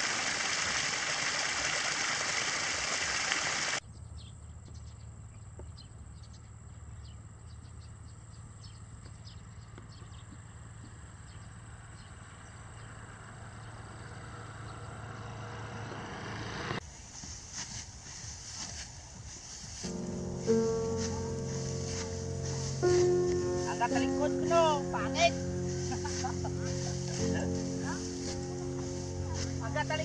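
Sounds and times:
water pouring over spillway: 0.0s - 3.8s
thin high buzz: 19.8s - 30.0s
steady low hum: 19.9s - 30.0s.

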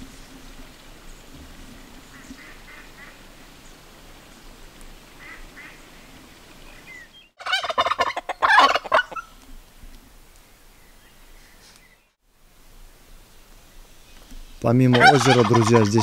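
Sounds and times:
turkey gobbling: 7.4s - 9.3s, 14.9s - 16.0s.

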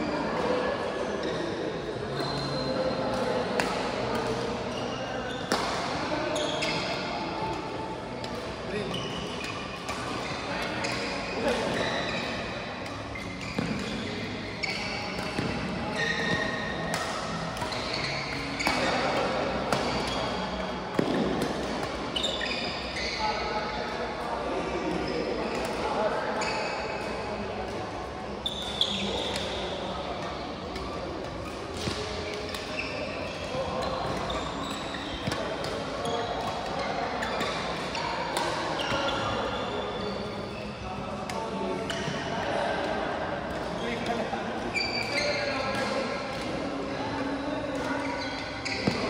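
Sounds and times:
background chatter: 0.0s - 49.0s
shoes squeaking on floor: 1.1s - 3.0s, 3.6s - 23.9s, 26.4s - 27.3s, 28.4s - 43.0s, 43.6s - 49.0s
rackets hitting shuttlecock: 3.1s - 4.6s, 5.5s - 6.0s, 9.4s - 20.3s, 20.9s - 22.2s, 35.1s - 39.3s, 47.7s - 49.0s.

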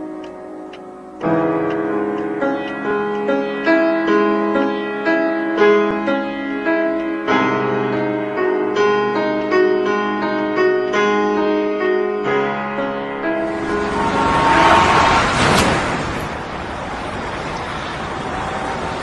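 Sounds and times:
piano notes: 0.0s - 16.2s
wash of noise: 13.3s - 19.0s.

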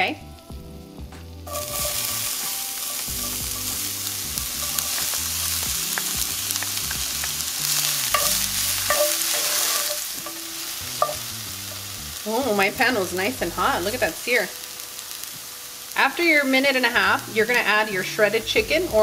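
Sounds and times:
onion sizzling in hot oil: 0.0s - 19.0s
spoon ticking on pan: 8.1s - 11.3s.

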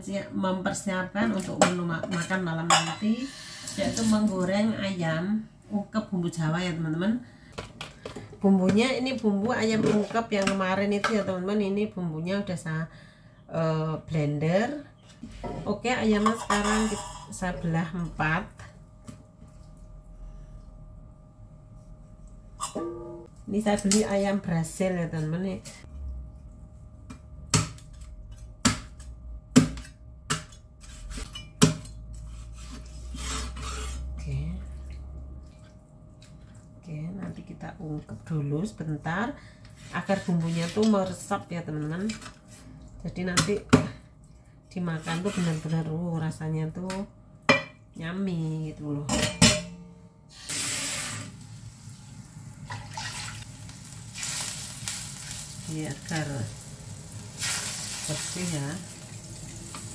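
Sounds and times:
metal bowl clanking: 1.6s - 4.2s, 15.4s - 17.6s, 49.0s - 50.0s
water poured into wok: 50.5s - 53.5s.

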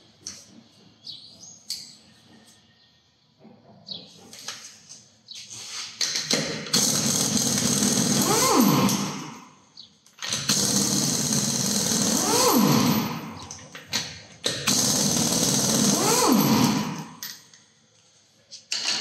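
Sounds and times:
impact wrench hammering: 6.1s - 9.5s, 14.4s - 17.5s.

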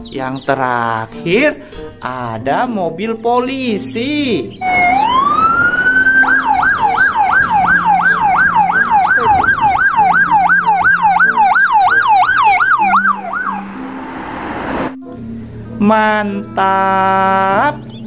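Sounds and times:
police siren wailing and yelping: 4.6s - 14.9s.

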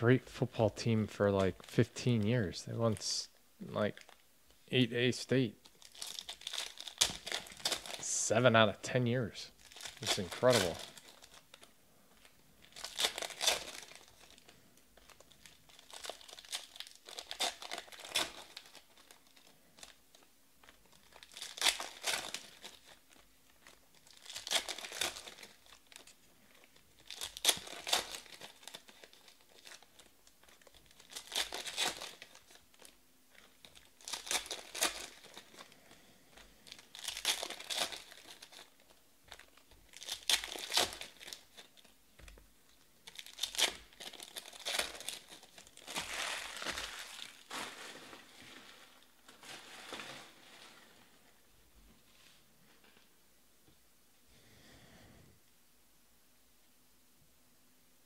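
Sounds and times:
card pack wrappers tearing and crinkling: 5.6s - 8.4s, 9.5s - 51.2s.

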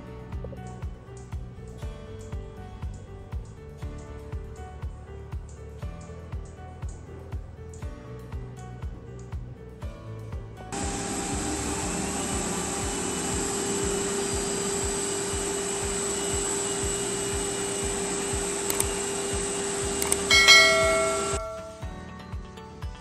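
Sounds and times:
background music with beat: 0.0s - 23.0s
drill and vacuum machine noise: 10.8s - 21.8s
ringing chime: 20.0s - 22.0s.

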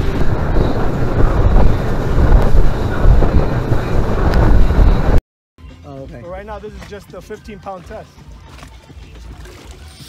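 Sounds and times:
wind buffeting microphone: 0.0s - 5.2s.

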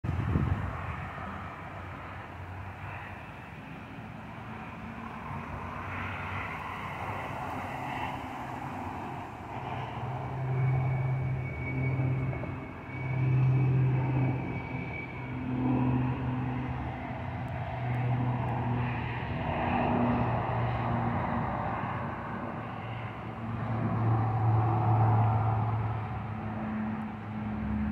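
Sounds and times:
turboprop plane drone: 0.0s - 27.9s
thin high whine: 8.1s - 20.0s.

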